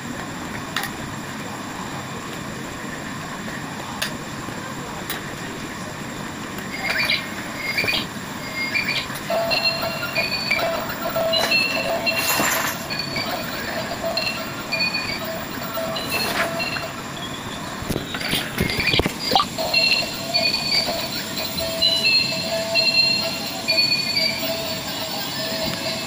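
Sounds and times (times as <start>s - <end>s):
toy high electronic beeps: 6.8s - 13.4s, 18.7s - 24.6s.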